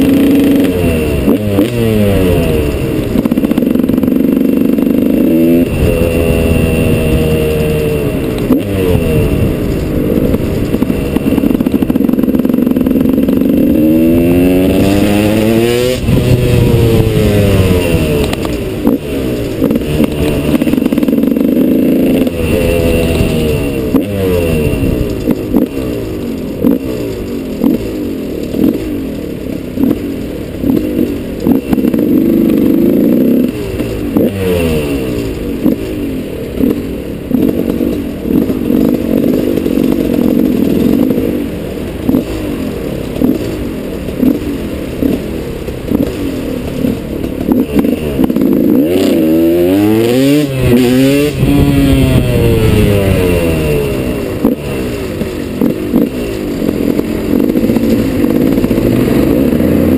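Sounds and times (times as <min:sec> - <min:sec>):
two-stroke motorcycle engine revving: 0:00.0 - 0:59.9.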